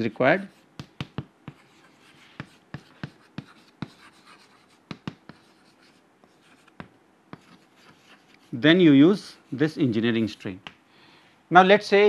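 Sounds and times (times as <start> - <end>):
chalk tapping on chalkboard: 0.0 - 8.5
faint chalk scratching: 0.0 - 10.7.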